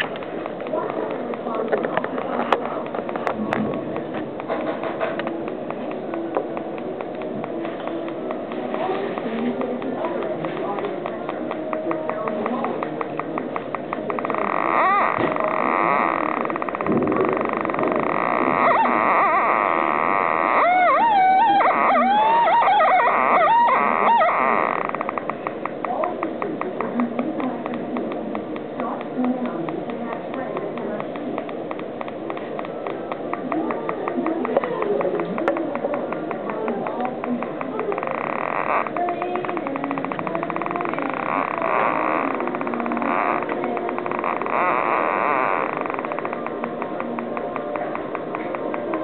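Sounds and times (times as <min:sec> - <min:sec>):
fast electronic ticking: 0:00.0 - 0:14.2.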